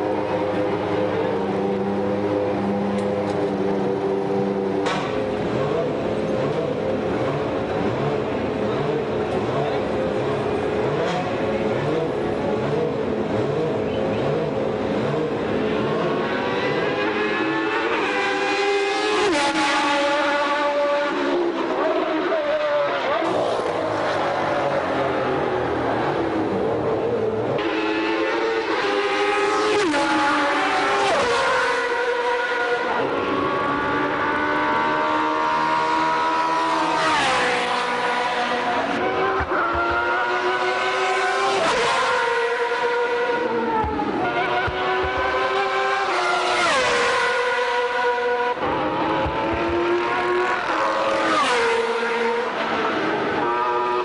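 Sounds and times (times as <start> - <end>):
racing car engine at high revs: 0.0 - 54.0.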